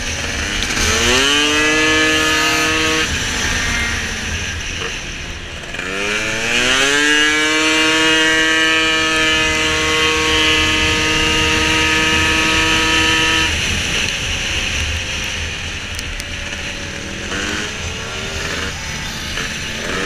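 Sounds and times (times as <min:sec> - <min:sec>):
scooter engine at high revs: 0:00.0 - 0:20.0
wind and rolling noise: 0:00.0 - 0:20.0.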